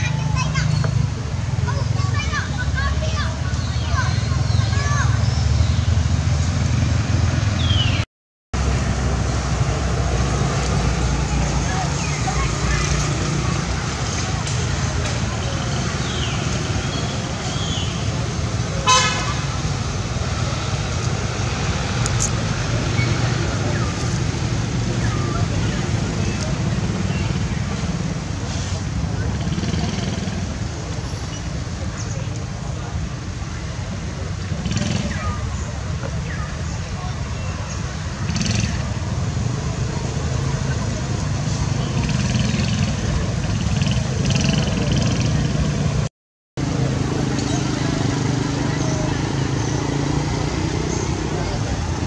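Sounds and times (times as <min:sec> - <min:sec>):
road traffic rumble: 0:00.0 - 0:52.0.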